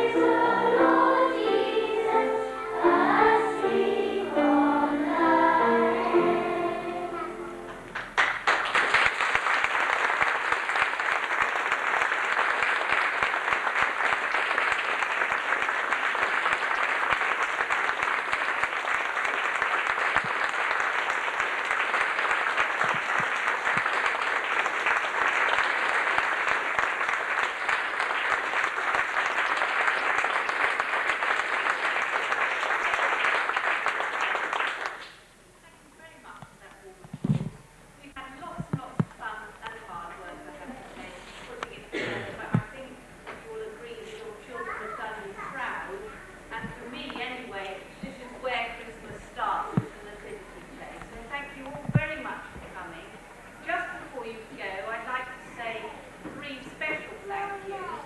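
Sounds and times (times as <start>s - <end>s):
audience applauding: 7.9s - 35.2s.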